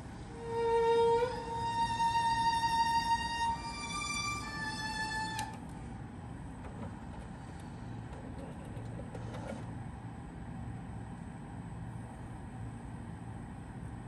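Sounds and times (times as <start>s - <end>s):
violin music: 0.0s - 5.7s
low steady hum: 0.0s - 14.0s.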